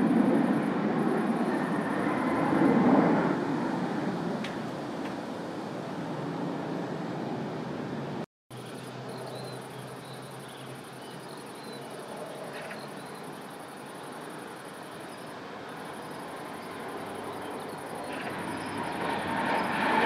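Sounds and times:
jet airliner landing: 0:00.0 - 0:08.2, 0:14.0 - 0:20.0
jet engines roaring: 0:00.0 - 0:08.2, 0:11.8 - 0:20.0.

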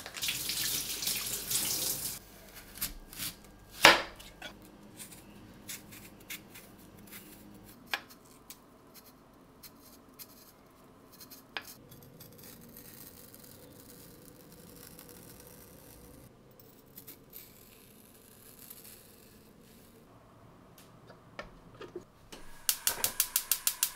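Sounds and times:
knife scraping radish: 0:02.3 - 0:20.0.

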